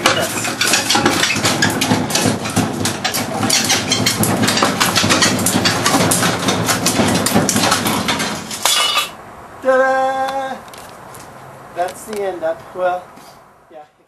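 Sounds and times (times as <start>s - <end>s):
hard objects clattering: 0.0s - 9.2s.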